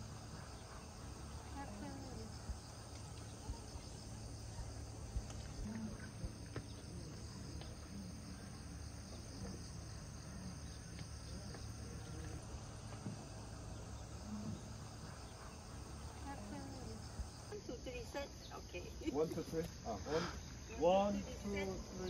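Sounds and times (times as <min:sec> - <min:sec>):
insects chirring: 0:00.0 - 0:22.0.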